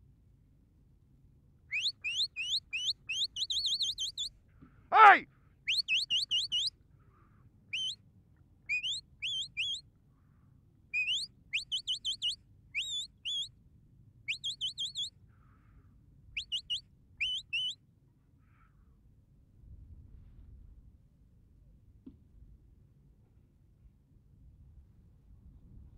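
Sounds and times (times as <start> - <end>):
shrill whistled commands: 1.7 - 4.3, 4.9 - 6.7, 7.7 - 8.0, 8.7 - 9.8, 11.0 - 13.5, 14.3 - 15.1, 16.4 - 17.8.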